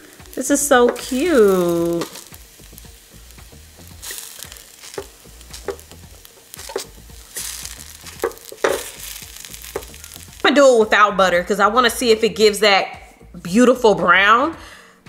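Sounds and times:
pancakes sizzling in frying pan: 0.0s - 10.7s
chopstick tapping and scraping pan: 0.8s - 1.2s, 4.0s - 10.2s.

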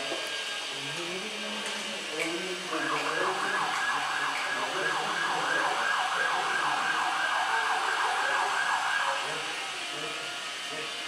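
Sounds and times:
siren yelping: 2.8s - 9.5s.

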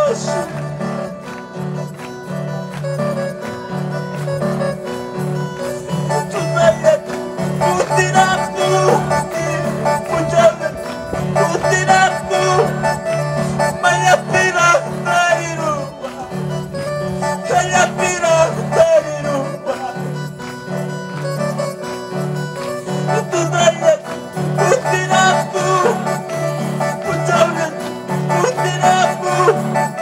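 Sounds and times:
guitar melody sliding between notes: 0.0s - 30.0s
live band music: 0.0s - 30.0s
repeating bass line: 5.8s - 19.5s.

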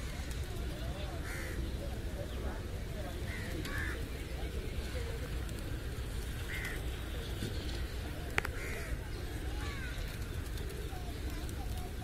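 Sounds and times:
flock of pigeons feeding: 0.0s - 12.0s
crows cawing: 1.2s - 1.6s, 3.3s - 4.0s, 6.5s - 6.8s, 8.6s - 9.0s.

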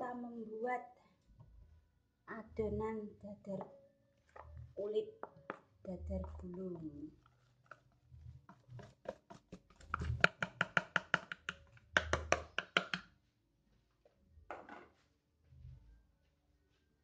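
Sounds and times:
plastic bowl tapping on rim: 8.5s - 13.1s.

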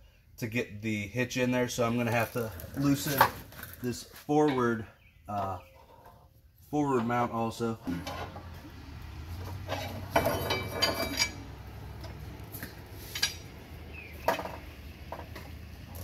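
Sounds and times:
hand tool clinking on metal: 9.6s - 12.2s.

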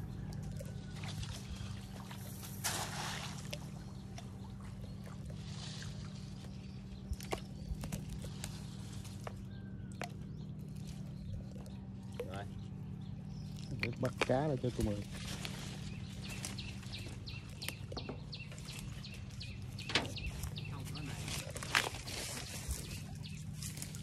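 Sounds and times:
steady low hum: 0.0s - 24.0s
water sloshing and splashing: 0.0s - 24.0s.

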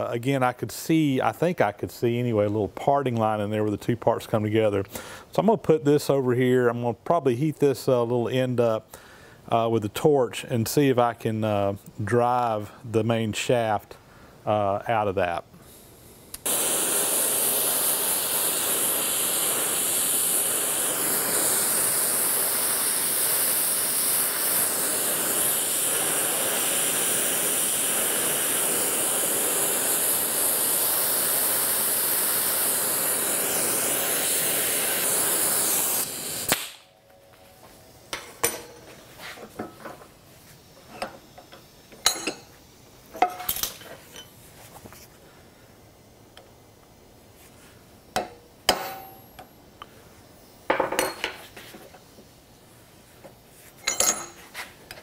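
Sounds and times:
gas torch flame hissing: 14.5s - 55.0s.

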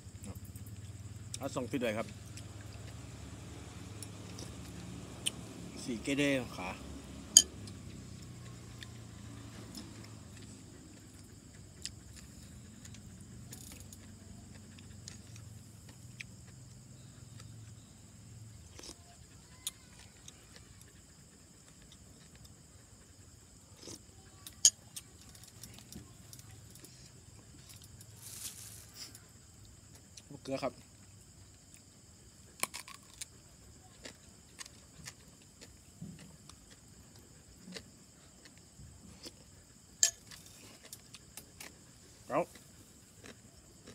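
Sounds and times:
insects chirring: 0.0s - 43.9s
quiet chewing: 0.2s - 5.6s, 7.4s - 43.9s.

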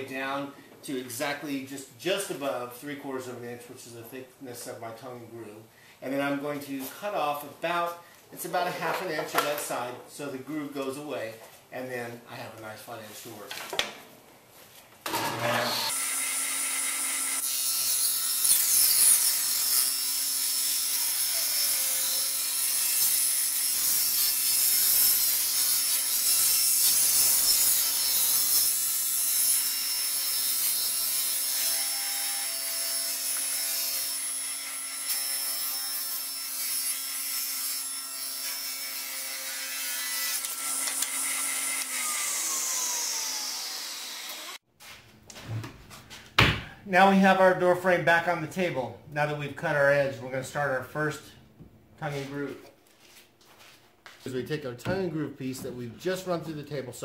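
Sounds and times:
table saw ripping wood: 15.0s - 44.6s
saw motor winding down: 40.4s - 44.6s.

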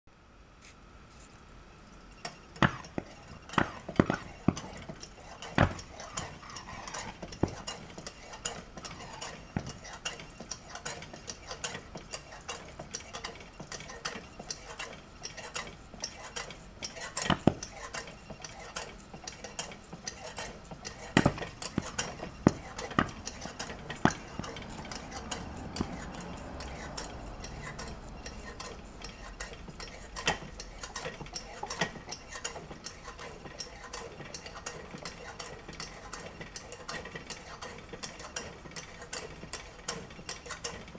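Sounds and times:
sharp metallic clicks: 2.2s - 40.9s.

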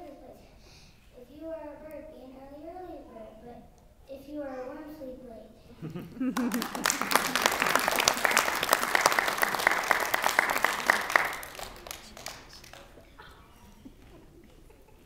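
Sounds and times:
crowd applauding: 6.1s - 13.3s.

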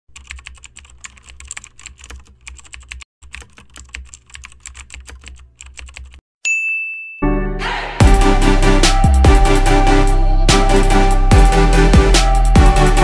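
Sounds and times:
computer keyboard typing: 0.1s - 6.2s.

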